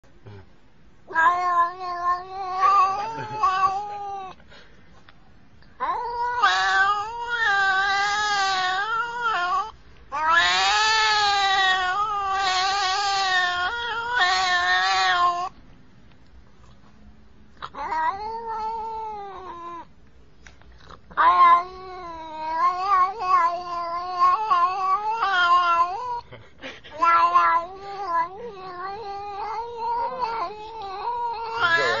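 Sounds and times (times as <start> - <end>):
cat yowling: 1.1 - 4.4, 5.8 - 15.6, 17.6 - 19.9, 21.1 - 26.2, 27.0 - 32.0.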